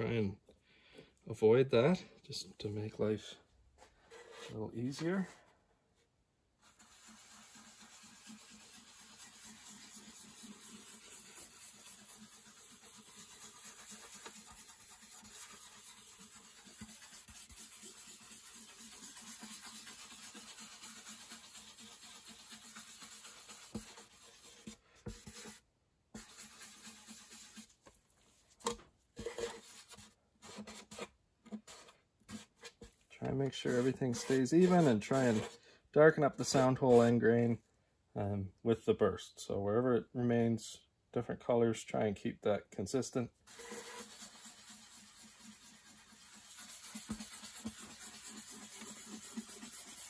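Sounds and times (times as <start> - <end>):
cloth pad rubbing on wood: 6.6 - 25.6, 26.2 - 27.8, 33.5 - 35.6, 43.5 - 50.0.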